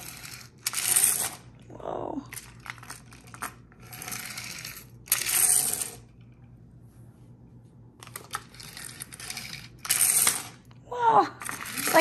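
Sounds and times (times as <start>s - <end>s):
toy truck wheels whirring: 0.0s - 1.4s, 2.6s - 6.0s, 8.1s - 10.6s, 11.4s - 12.0s.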